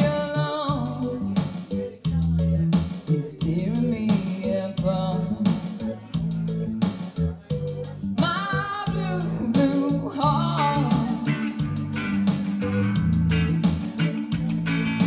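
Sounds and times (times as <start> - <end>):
woman singing: 0.0 - 1.4, 3.1 - 6.1, 8.2 - 11.7
strummed guitar: 0.0 - 15.0.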